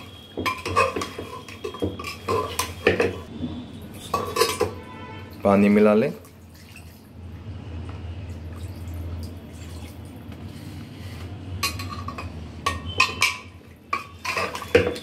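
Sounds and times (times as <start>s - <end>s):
ladle clinking and scraping pot: 0.0s - 3.3s, 3.9s - 4.9s, 11.0s - 15.0s.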